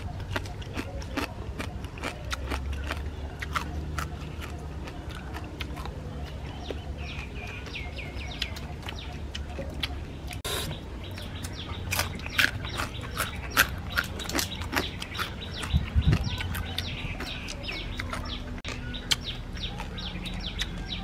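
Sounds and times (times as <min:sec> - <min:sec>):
chickens clucking: 0:00.0 - 0:21.0.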